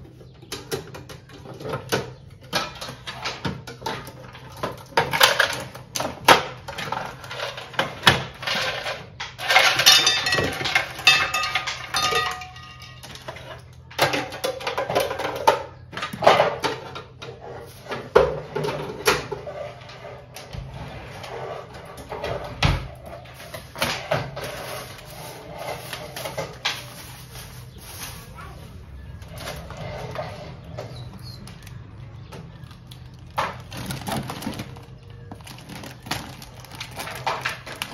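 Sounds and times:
plastic and paper wrapping crinkling: 23.1s - 30.7s, 32.5s - 37.9s.

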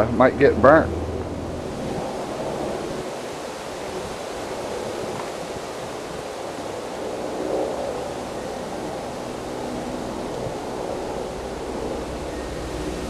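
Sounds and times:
grass fire burning: 0.0s - 13.0s.

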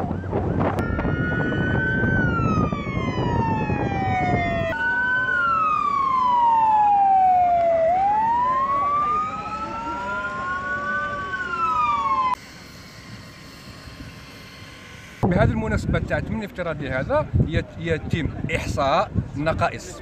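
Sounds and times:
fainter second siren tone: 0.0s - 15.3s
siren wailing: 0.0s - 15.3s.

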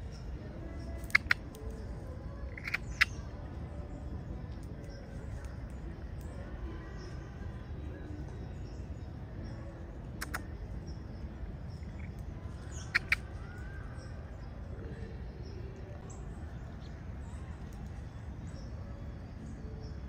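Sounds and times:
faint bird chirps: 0.0s - 20.0s
sharp clicks: 10.2s - 10.5s.

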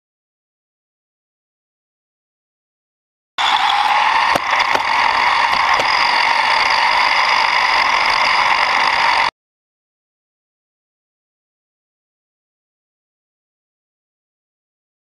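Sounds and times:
rc car motor whining: 3.4s - 9.3s
sharp knocks: 4.3s - 4.9s.

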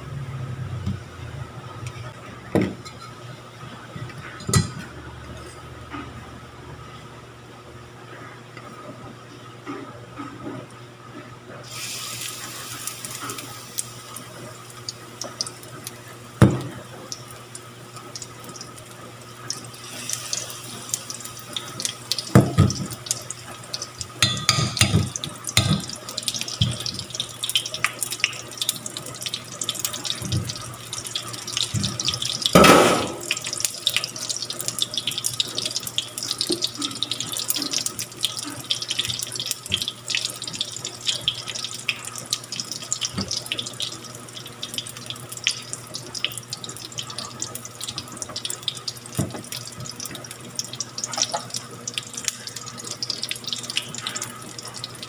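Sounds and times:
batter sizzling in hot oil: 11.7s - 55.0s.

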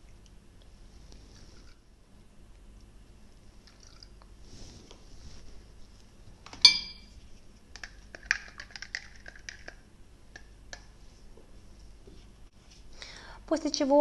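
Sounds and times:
water poured into plastic beaker: 3.6s - 4.2s
metal spoon clink: 6.6s - 7.1s
spoon stirring and tapping beaker: 6.6s - 7.1s, 7.8s - 9.8s.

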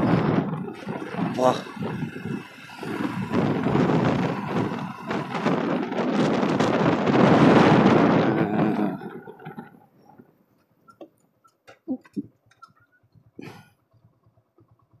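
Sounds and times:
wind buffeting microphone: 0.0s - 10.4s.

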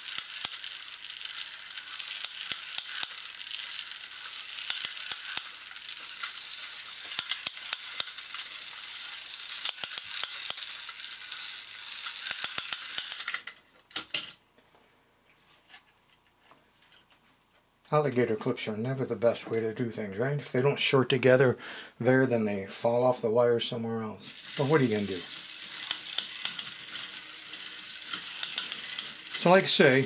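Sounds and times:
motor whirring: 0.0s - 13.6s, 24.3s - 30.0s
gear clicking: 0.0s - 14.1s, 24.3s - 30.0s.

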